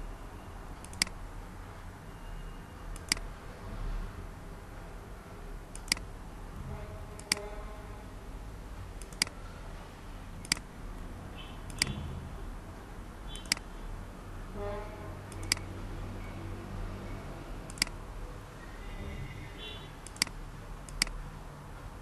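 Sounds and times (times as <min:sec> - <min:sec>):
computer mouse clicks: 0:00.8 - 0:01.2, 0:02.9 - 0:03.3, 0:05.7 - 0:06.1, 0:07.2 - 0:07.4, 0:09.0 - 0:09.4, 0:10.4 - 0:10.7, 0:11.7 - 0:12.0, 0:13.4 - 0:13.7, 0:15.3 - 0:15.7, 0:17.7 - 0:18.0, 0:20.0 - 0:21.2.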